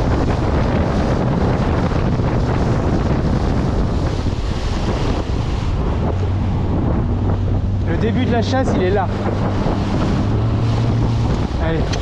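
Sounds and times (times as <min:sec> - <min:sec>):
boat engine humming: 0:00.0 - 0:12.0
sea water rushing: 0:00.0 - 0:12.0
wind buffeting microphone: 0:00.0 - 0:12.0.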